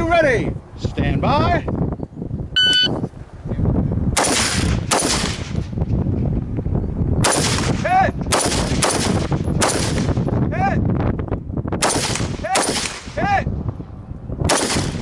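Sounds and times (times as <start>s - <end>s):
shot timer beep: 2.6s - 3.0s
rifle shots with echo: 4.2s - 5.6s, 7.2s - 10.2s, 11.8s - 13.2s, 14.5s - 15.0s.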